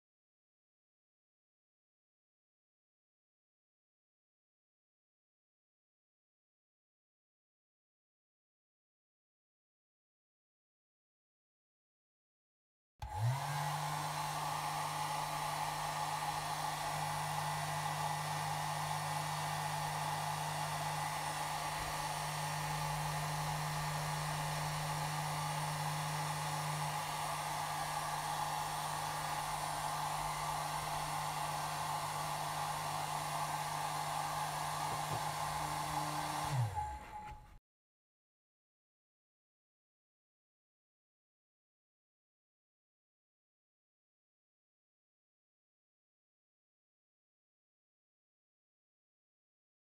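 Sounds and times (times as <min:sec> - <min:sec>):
hair dryer blowing: 0:13.0 - 0:37.6.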